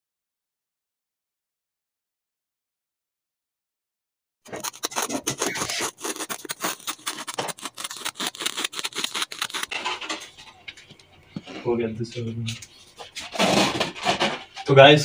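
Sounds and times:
scissors cutting fabric: 4.5 - 9.8.

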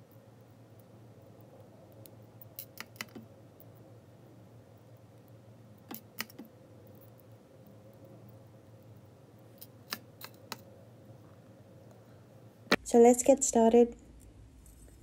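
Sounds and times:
faint steady hum: 0.0 - 15.0
jewelry tools clicking: 2.0 - 3.2, 5.8 - 6.5, 9.6 - 10.6.

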